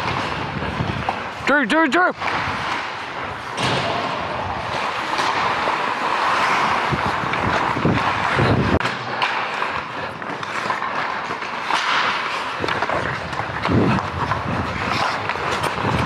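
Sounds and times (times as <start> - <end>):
wind rushing over microphone: 0.0 - 1.1, 6.6 - 8.8, 12.6 - 16.0
ice skates scraping on ice: 0.0 - 16.0.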